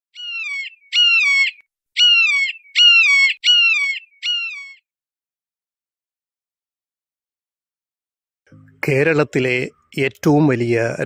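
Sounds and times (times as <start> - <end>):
bird's harsh falling calls: 0.2 - 4.9.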